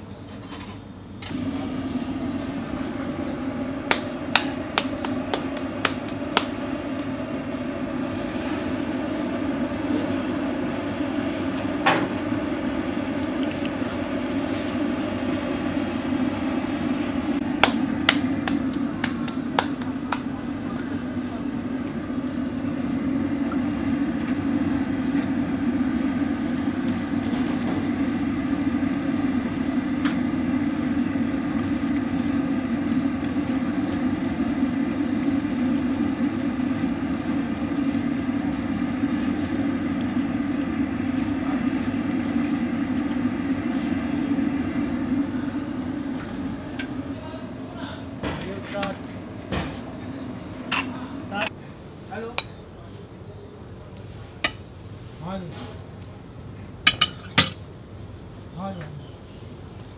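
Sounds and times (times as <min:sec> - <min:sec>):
dough slapped between palms: 0:03.9 - 0:06.6, 0:17.6 - 0:20.3
frying in hot oil: 0:21.9 - 0:47.2, 0:56.8 - 0:57.8.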